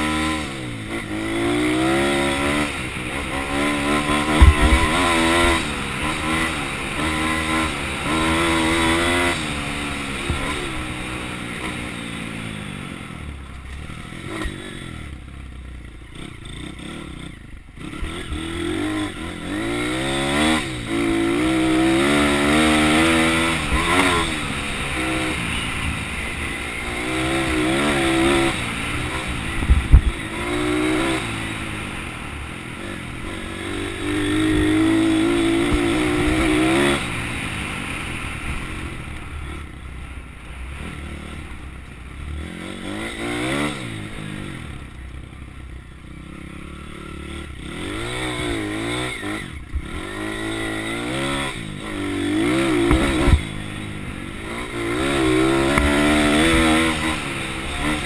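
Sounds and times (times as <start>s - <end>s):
pit bike engine revving: 0.0s - 58.0s.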